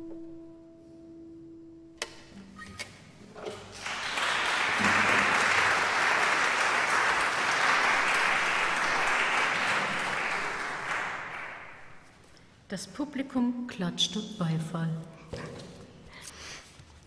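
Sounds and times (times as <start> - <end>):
audience applauding: 3.5 - 12.1.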